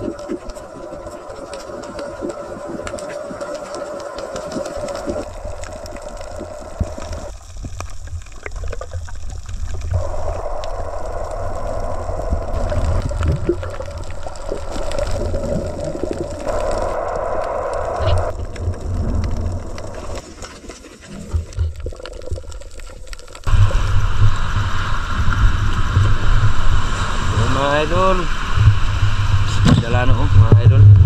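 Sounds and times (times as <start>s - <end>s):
faint clicks: 0.0s - 20.6s
bubbling: 0.0s - 31.0s
underwater water rush: 0.0s - 31.0s.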